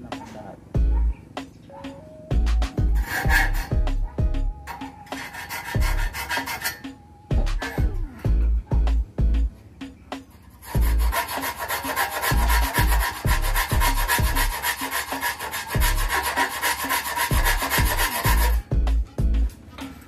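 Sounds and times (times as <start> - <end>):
background music with low beat: 0.0 - 20.0
file rasping on saw teeth: 2.9 - 4.0, 4.7 - 7.0, 10.3 - 18.6.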